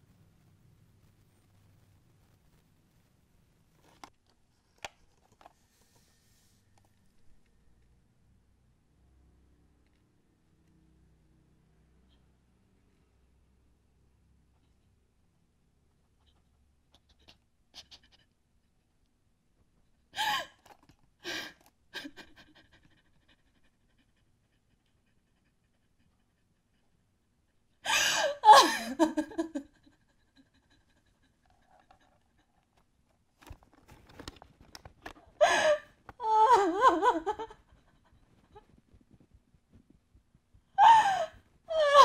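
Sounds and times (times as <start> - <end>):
person gasping and panting: 35.4 - 36.8, 40.8 - 42.0.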